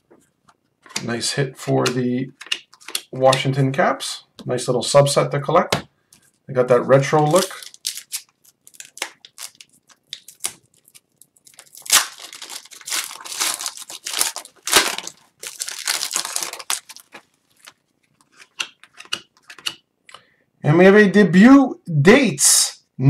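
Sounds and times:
wrapper crinkling and tearing: 7.1 - 18.4
cards ticking: 7.3 - 19.8
sharp cracks: 11.5 - 15.2.

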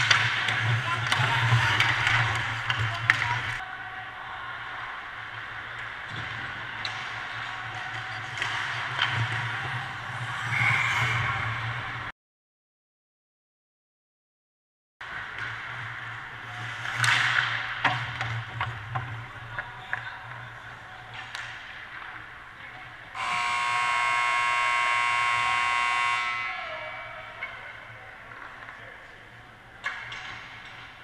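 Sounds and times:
sticks and puck clacking: 0.0 - 3.6, 5.7 - 10.7, 15.1 - 22.9, 27.4 - 31.0
ice rink buzzer: 23.2 - 27.2.

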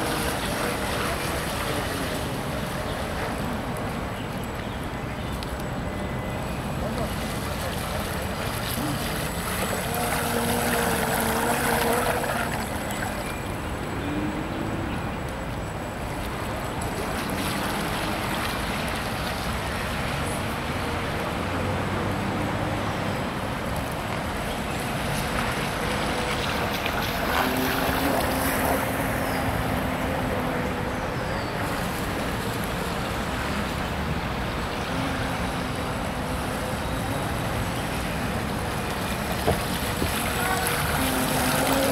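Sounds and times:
water: 0.0 - 41.9
wind: 0.0 - 41.9.

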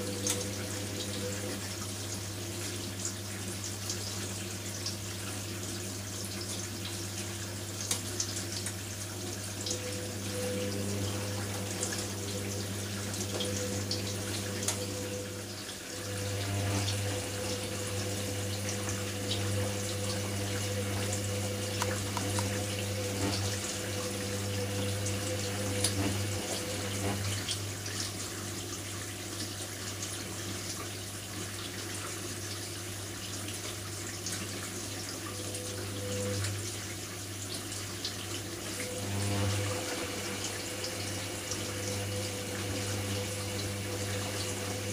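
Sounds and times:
water sloshing in drum: 0.0 - 32.5
washing machine motor humming: 0.0 - 44.9.

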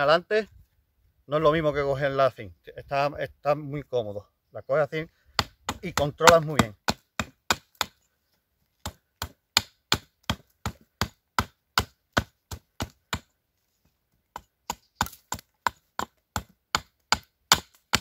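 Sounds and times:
hatchet chopping wood: 5.3 - 8.0, 8.8 - 13.3, 14.3 - 18.0.

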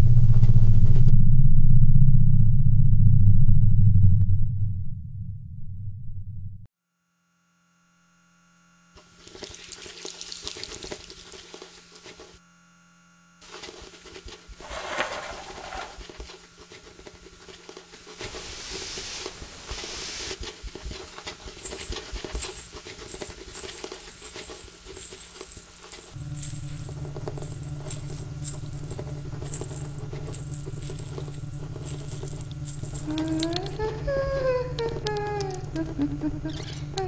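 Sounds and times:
rustling: 13.4 - 36.0
light scratching and pattering: 13.5 - 37.0.

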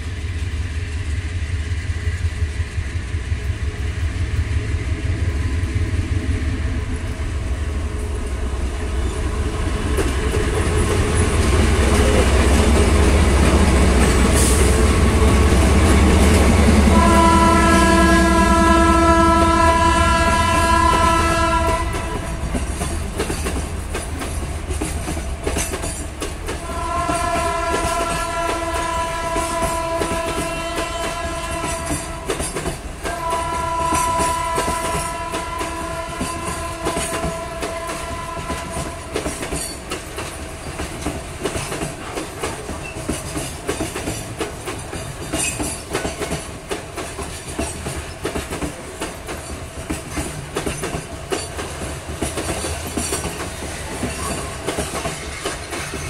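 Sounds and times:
diesel locomotive rumble: 0.0 - 56.0
train horn blasts: 16.5 - 22.6, 26.6 - 39.4
wagon wheels clattering on rails: 38.5 - 56.0.

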